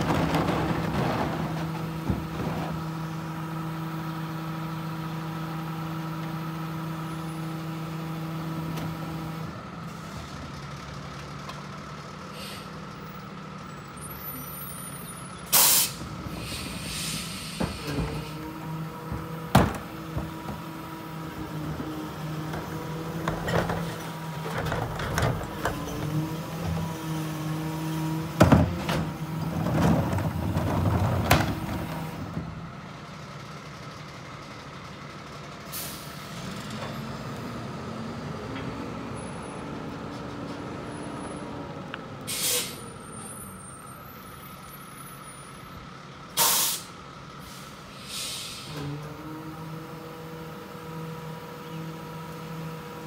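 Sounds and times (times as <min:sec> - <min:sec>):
trash clattering into hopper: 0:00.0 - 0:03.0, 0:17.6 - 0:21.0, 0:28.2 - 0:32.4
garbage truck engine: 0:00.0 - 0:53.0
air brake hisses: 0:12.3 - 0:12.8, 0:15.5 - 0:18.3, 0:42.3 - 0:43.0, 0:46.4 - 0:48.8.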